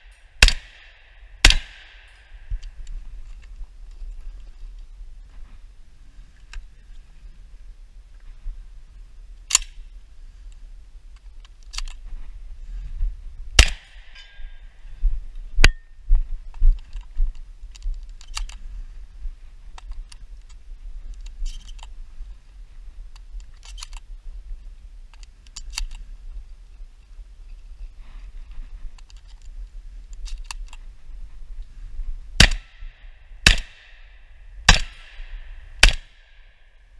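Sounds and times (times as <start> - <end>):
sharp loud cracks: 0.0 - 2.5, 13.6 - 14.2, 32.4 - 36.6
shotgun mechanical clicks: 25.1 - 26.0.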